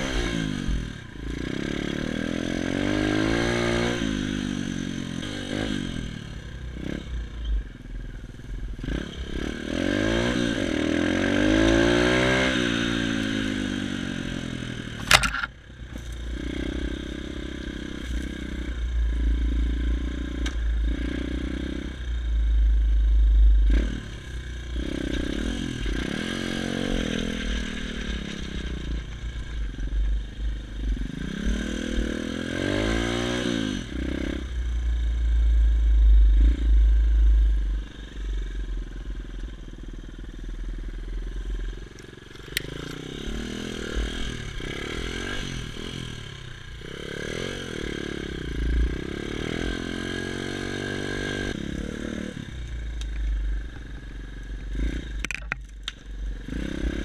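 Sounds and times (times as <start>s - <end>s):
motorbike engine revving: 0.0s - 7.4s, 8.8s - 57.0s
bike rattling: 15.0s - 16.2s
heavy low rumble: 18.6s - 26.1s, 34.4s - 41.8s.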